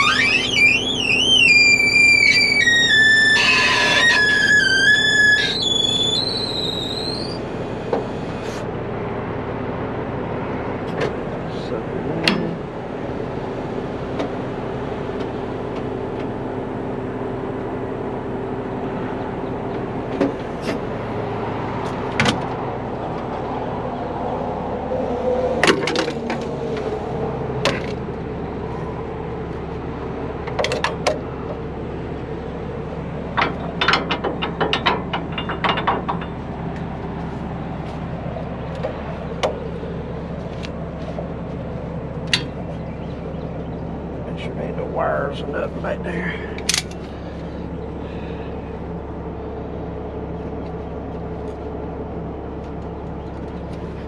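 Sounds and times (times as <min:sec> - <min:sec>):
diesel engine idling: 0:00.0 - 0:54.0
metallic clanks of tow gear: 0:12.2 - 0:12.7, 0:33.3 - 0:36.9, 0:42.2 - 0:43.8, 0:46.5 - 0:47.3.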